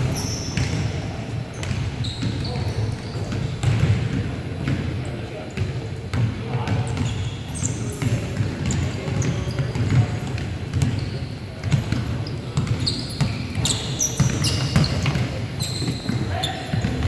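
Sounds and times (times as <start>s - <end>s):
sneaker squeaks on wood: 0.0s - 0.9s, 1.5s - 3.8s, 6.8s - 17.0s.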